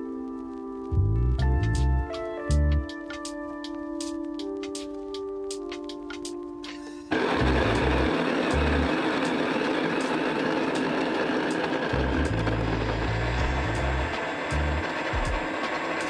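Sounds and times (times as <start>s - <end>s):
coffee grinder grinding beans: 7.1s - 16.0s.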